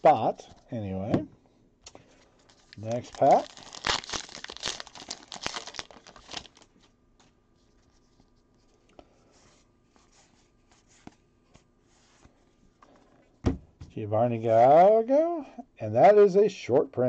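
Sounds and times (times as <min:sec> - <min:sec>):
foil wrapper crinkling and tearing: 0:02.4 - 0:06.9.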